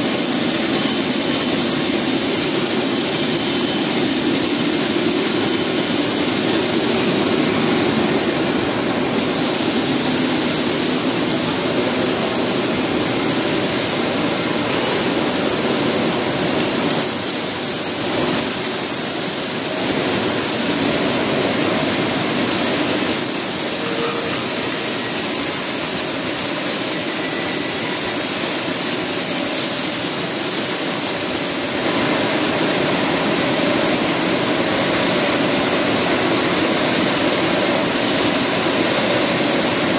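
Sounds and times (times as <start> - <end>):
high hiss: 0.0 - 39.9
machine noise and air rush: 0.0 - 39.9.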